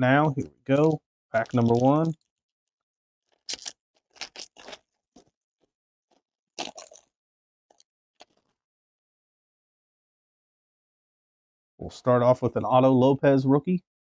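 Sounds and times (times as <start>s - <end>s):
foil wrapper crinkling and tearing: 0.7s - 2.2s, 3.3s - 5.3s.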